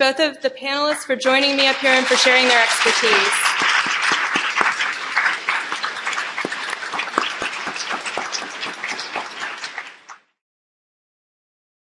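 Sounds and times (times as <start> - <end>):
audience applauding: 1.2 - 10.2.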